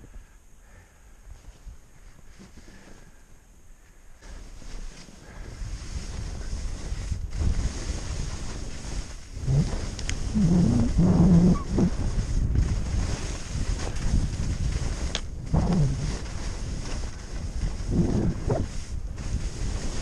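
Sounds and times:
skis scraping through snow: 1.4 - 3.2, 4.2 - 20.0
wind rushing over microphone: 5.2 - 20.0.

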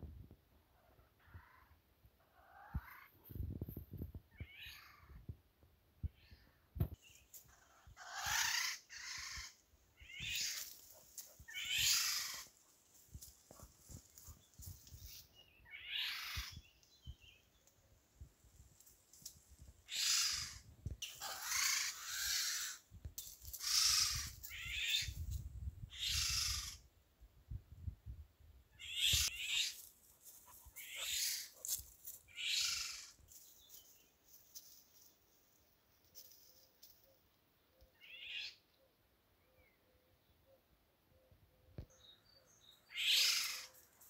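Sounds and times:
bird harsh rasping calls: 7.5 - 10.7, 11.4 - 12.5, 19.9 - 22.8, 23.6 - 25.1, 25.9 - 26.8, 30.7 - 31.5, 32.3 - 33.2, 42.9 - 43.8.

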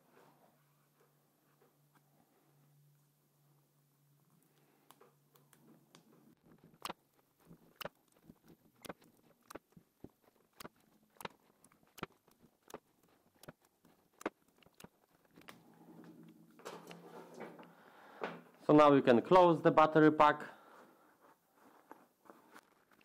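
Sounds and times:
tape clicking and crackling: 4.3 - 18.4, 21.9 - 23.0.

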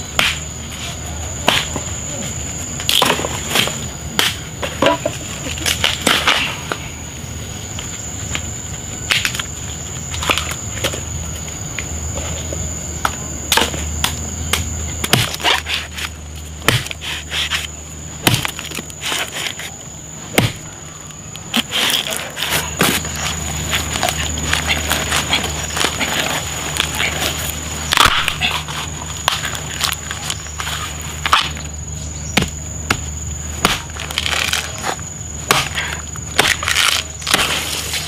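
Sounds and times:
machete chopping bamboo: 0.1 - 0.4, 1.4 - 1.9, 2.9 - 5.1, 13.5 - 20.7, 27.9 - 30.3, 31.2 - 31.7, 32.3 - 38.0.

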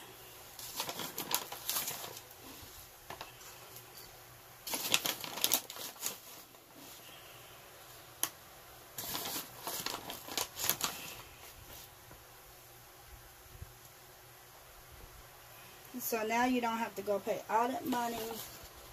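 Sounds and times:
bag crinkling: 0.6 - 3.7, 4.6 - 7.0, 9.0 - 11.9.

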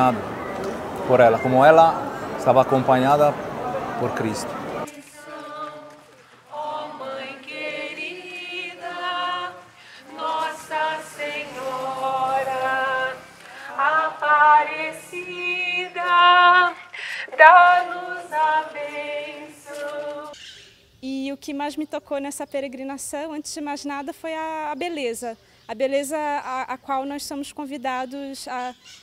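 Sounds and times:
group singing a hymn: 2.2 - 20.4.

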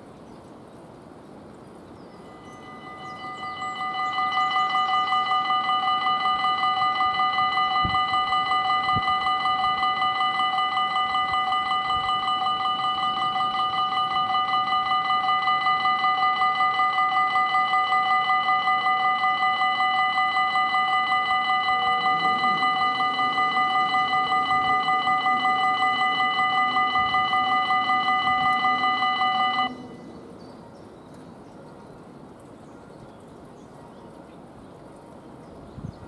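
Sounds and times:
faint low hum: 1.9 - 36.0
level crossing bell ringing: 2.2 - 30.1.

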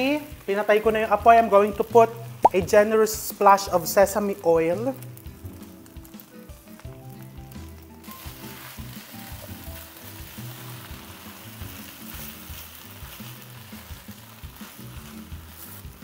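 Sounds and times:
rice sizzling in a wok: 0.0 - 16.0
spatula tossing rice: 7.7 - 16.0.

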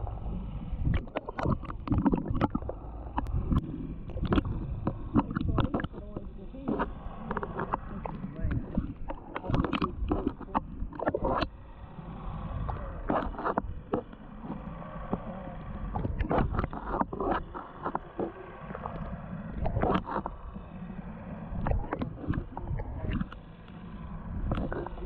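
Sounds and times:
water slapping against boat hull: 0.9 - 11.5.

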